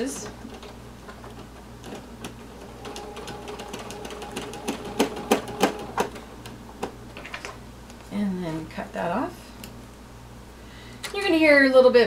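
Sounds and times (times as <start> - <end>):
sewing machine motor hum: 2.0 - 6.6.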